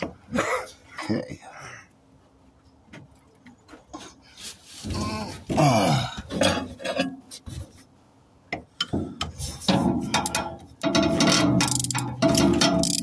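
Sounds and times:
metal tools clanking and scraping: 6.3s - 7.4s, 9.4s - 13.0s
ratchet clicking rapidly: 11.6s - 12.1s, 12.8s - 13.0s.

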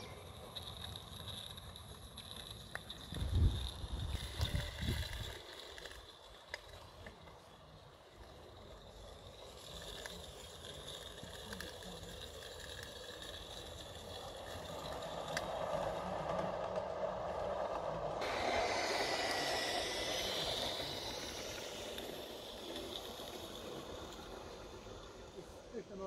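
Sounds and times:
model steam train running rattle: 0.0s - 26.0s.

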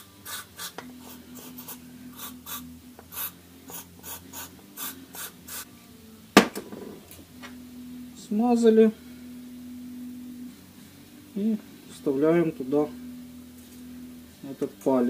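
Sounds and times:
sharp knock: 6.4s - 6.9s.

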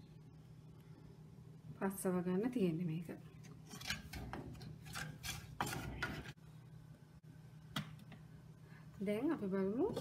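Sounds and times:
spoon scraping paste in clay pot: 3.6s - 6.4s.

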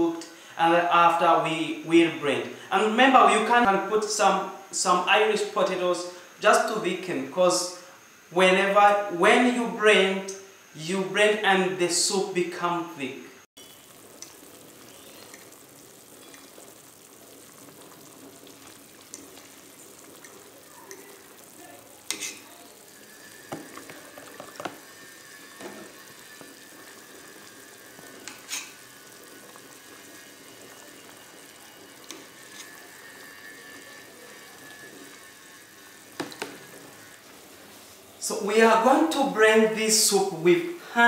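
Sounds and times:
soup simmering and bubbling: 13.6s - 38.2s.

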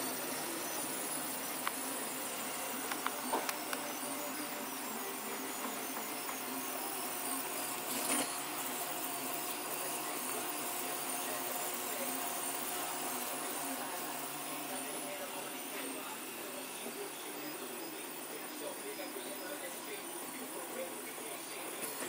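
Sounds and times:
faint steady tones: 0.0s - 22.0s
printer mechanical whir: 0.0s - 22.0s.

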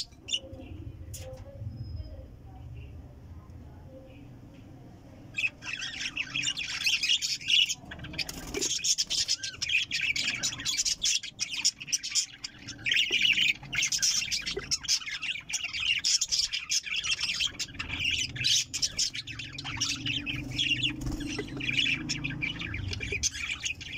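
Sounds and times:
budgerigars chattering: 5.3s - 23.9s.

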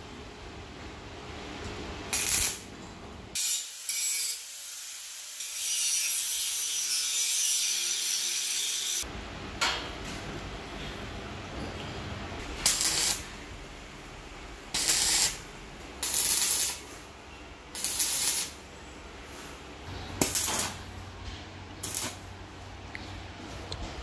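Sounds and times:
welding arc hiss and crackle: 2.1s - 2.7s, 3.3s - 9.1s, 12.4s - 13.4s, 14.6s - 17.1s, 17.7s - 18.7s, 20.1s - 21.0s, 21.8s - 22.3s.

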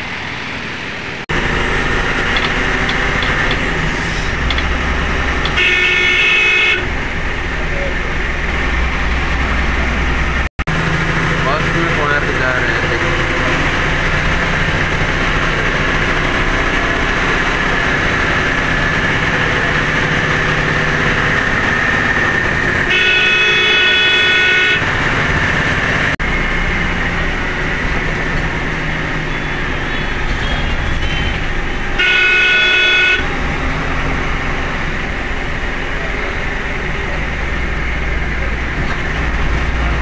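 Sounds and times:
bus engine and road noise: 0.0s - 40.0s
bus horn blasts: 5.4s - 7.1s, 22.8s - 25.0s, 29.2s - 33.5s.

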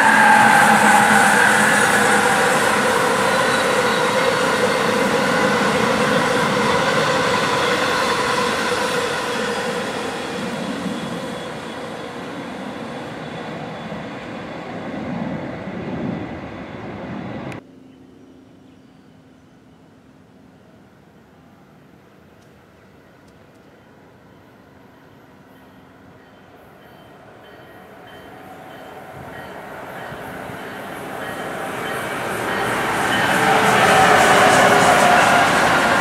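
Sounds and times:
train wheels running on rails: 0.0s - 17.6s, 25.0s - 36.0s.

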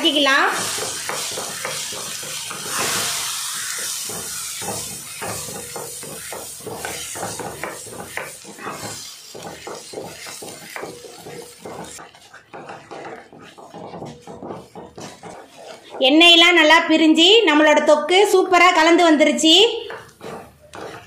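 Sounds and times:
frying sizzle: 0.0s - 16.0s
wooden spatula scraping a pan: 0.0s - 17.1s, 18.3s - 21.0s.

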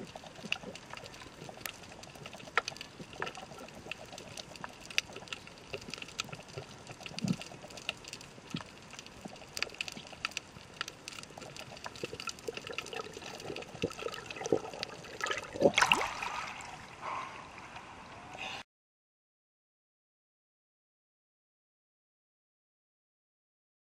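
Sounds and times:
splashing rush of water: 14.4s - 17.0s.

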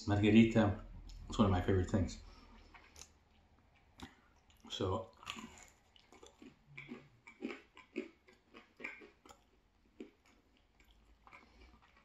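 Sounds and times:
chewing with soft crunches: 0.8s - 12.0s
wet mouth clicks: 2.8s - 4.7s.

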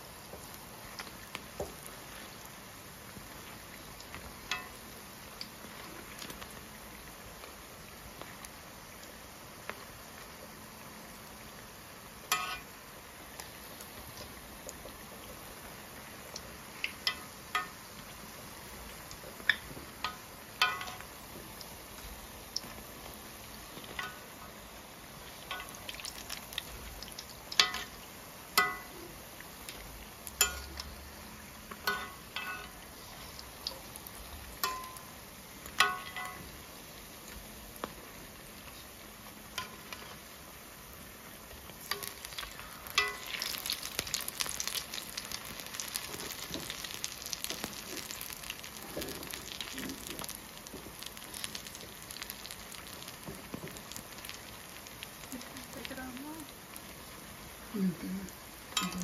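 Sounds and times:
oil sizzling and crackling: 0.0s - 59.0s
metal utensil clinking on pot: 12.3s - 12.6s, 20.1s - 21.0s, 27.6s - 27.9s, 28.6s - 28.9s, 30.4s - 30.8s, 31.8s - 32.8s, 34.6s - 35.0s, 35.8s - 36.4s, 43.0s - 43.3s, 58.8s - 59.0s.

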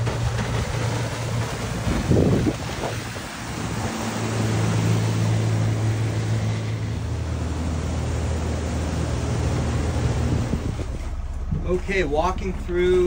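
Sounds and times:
boat engine humming: 0.0s - 13.0s
water rushing: 0.0s - 13.0s
wind on microphone: 1.8s - 4.1s, 9.4s - 11.1s.

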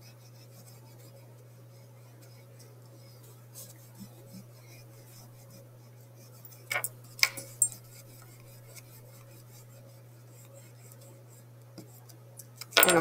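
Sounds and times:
steady low hum: 0.0s - 13.0s
eraser rubbing on paper: 7.8s - 12.1s.

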